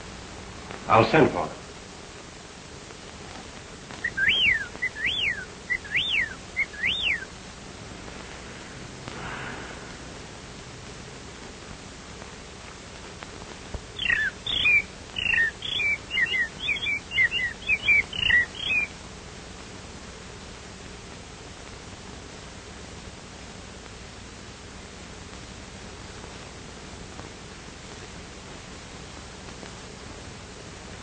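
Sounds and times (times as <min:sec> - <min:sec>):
bird twittering chirps: 0:04.0 - 0:07.3, 0:14.0 - 0:18.9
bird whistling: 0:04.0 - 0:07.3, 0:14.0 - 0:18.9.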